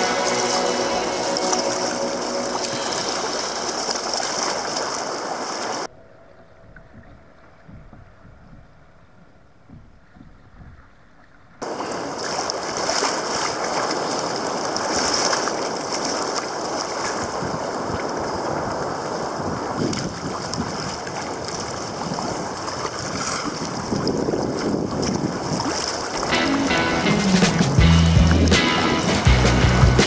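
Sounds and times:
water splashing around kayak bow: 0.0s - 5.9s, 6.7s - 29.3s
wind on microphone: 0.0s - 29.3s.

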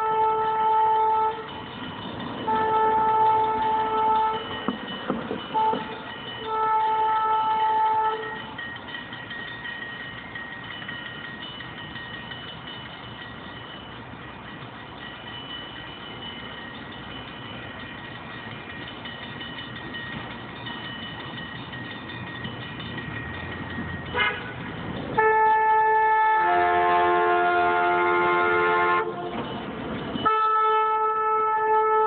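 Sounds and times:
train horn blast: 0.0s - 1.5s, 2.5s - 4.5s, 5.6s - 5.9s, 6.5s - 8.5s, 24.1s - 29.4s, 30.2s - 32.0s
train rumble: 0.0s - 32.0s.

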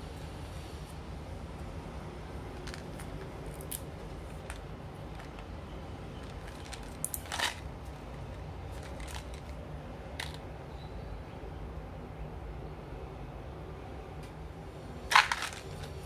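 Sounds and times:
plastic bottle clicks and rustles: 6.2s - 7.7s, 8.7s - 9.6s, 15.1s - 16.0s.

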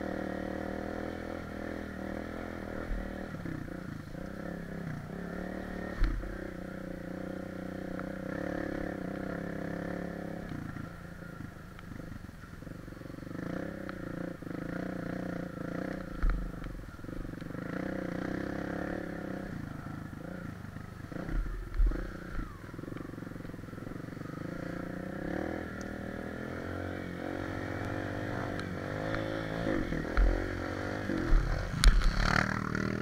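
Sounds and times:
dirt bike engine revving: 17.5s - 23.2s, 23.8s - 33.0s.

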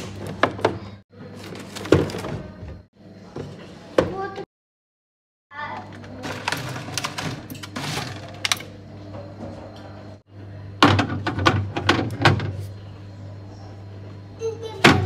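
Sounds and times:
items knocking on fridge shelves: 0.0s - 4.5s, 10.8s - 12.7s, 14.8s - 15.0s.

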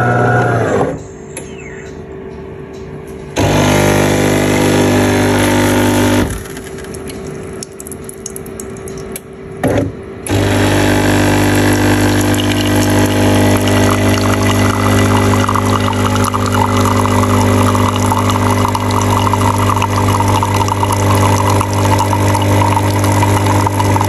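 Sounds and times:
espresso machine hum: 0.0s - 0.8s, 3.4s - 7.6s, 10.3s - 24.0s.

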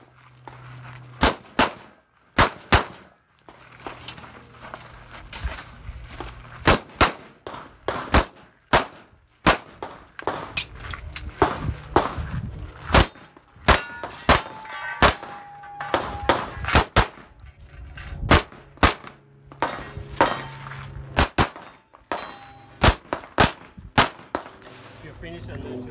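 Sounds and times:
pistol shots: 1.2s - 3.1s, 6.6s - 10.7s, 12.9s - 17.3s, 18.3s - 20.4s, 21.2s - 24.6s
steel targets clanging: 12.9s - 20.9s, 21.5s - 23.0s.

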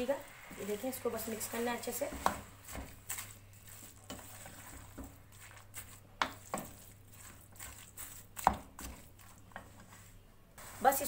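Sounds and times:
spoon knocking and scraping pot: 2.0s - 10.0s.

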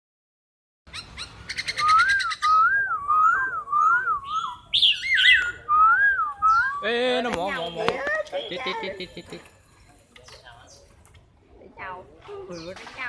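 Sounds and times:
harsh bird calls: 0.9s - 9.4s
bird singing: 0.9s - 9.5s.

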